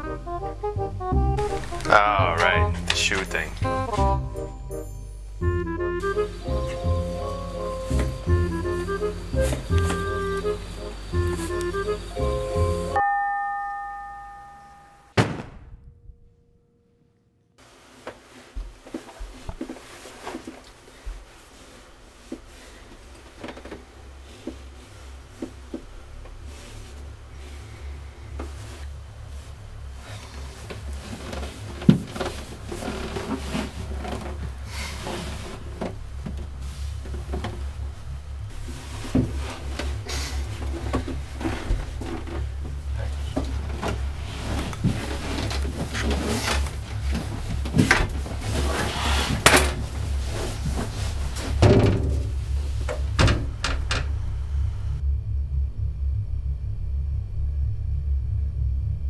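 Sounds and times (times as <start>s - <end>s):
low steady drone: 0.0s - 13.1s, 22.2s - 59.0s
door opening: 50.8s - 54.6s.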